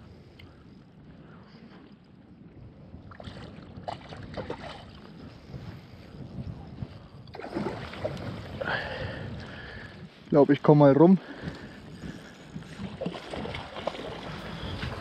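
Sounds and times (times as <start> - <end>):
wind rumbling on microphone: 0.0 - 15.0
small waves lapping: 3.0 - 6.0, 7.2 - 10.3, 10.9 - 15.0
short splashes: 7.3 - 9.0, 12.8 - 15.0.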